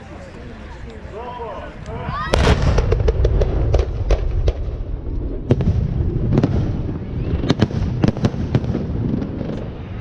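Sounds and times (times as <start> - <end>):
steady low rumble: 1.6 - 10.0
firework bangs: 2.2 - 10.0.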